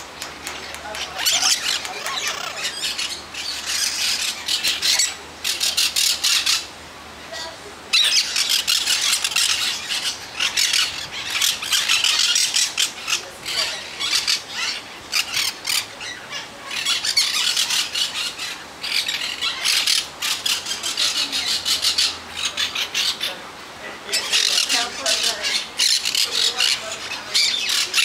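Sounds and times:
parrots squawking and screeching: 0.0s - 6.7s, 7.3s - 28.0s.

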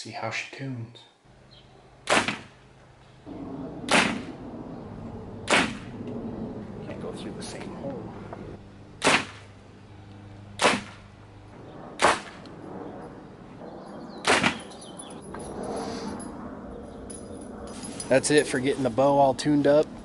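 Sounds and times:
arrows smacking through paper: 2.1s - 2.6s, 3.9s - 4.3s, 5.5s - 5.9s, 9.0s - 9.5s, 10.6s - 11.0s, 14.3s - 14.6s.

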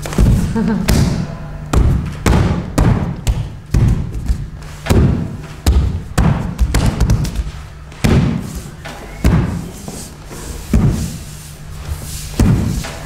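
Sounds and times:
heavy echoing thuds: 0.0s - 7.4s, 8.0s - 8.4s, 9.2s - 9.7s
low steady hum: 0.0s - 13.0s.

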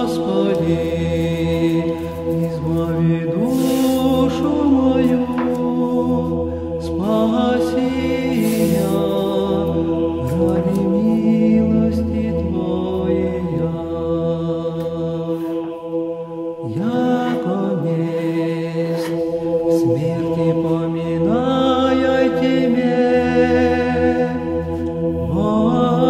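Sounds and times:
church chant singing: 0.0s - 26.0s
steady held drone: 0.0s - 26.0s.

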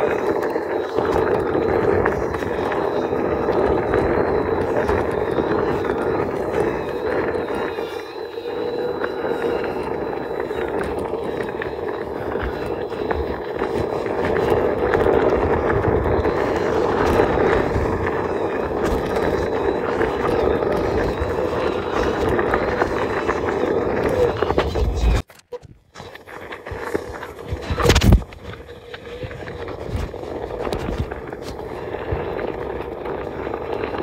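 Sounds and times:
drone propeller hum: 0.0s - 25.2s.

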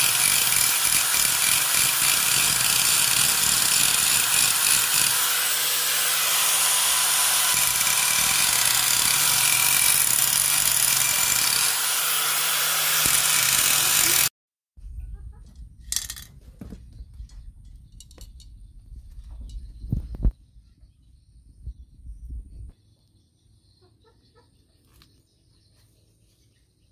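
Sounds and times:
angle grinder grinding metal: 0.0s - 14.3s.

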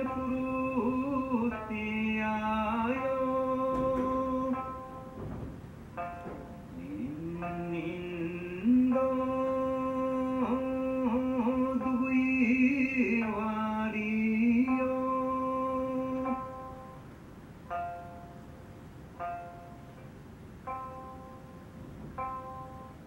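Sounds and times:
plucked string instrument: 0.0s - 23.0s
person singing lullaby: 6.2s - 17.0s.

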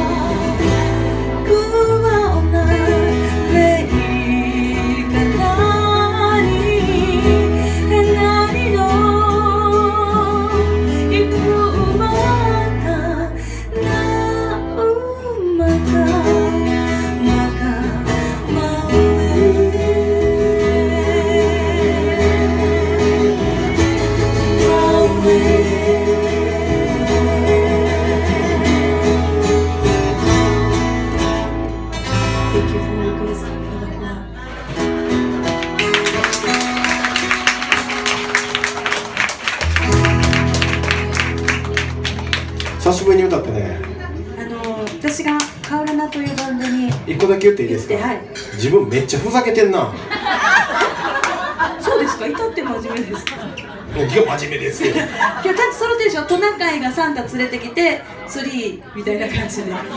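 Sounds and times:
person singing: 0.0s - 29.7s
strummed acoustic guitars: 0.0s - 56.4s.

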